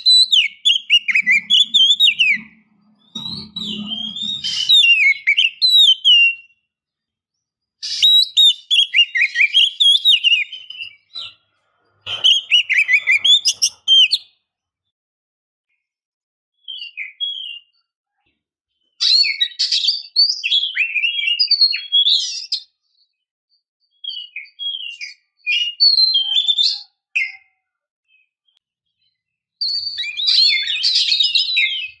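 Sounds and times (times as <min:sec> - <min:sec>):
bird singing chirps and trills: 0:00.0 - 0:06.6, 0:07.8 - 0:11.4, 0:12.1 - 0:14.3.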